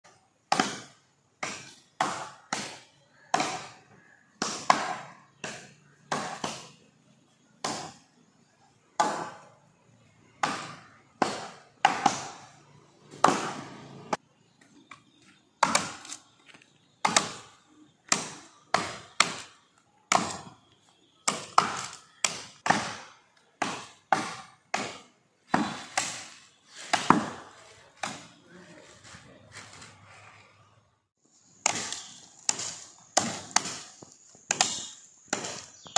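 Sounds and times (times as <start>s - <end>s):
axe chopping into palm trunk: 4.4s - 6.8s, 10.4s - 12.4s, 13.2s - 13.6s, 15.6s - 16.2s, 20.1s - 20.5s, 21.3s - 28.3s, 31.6s - 35.9s.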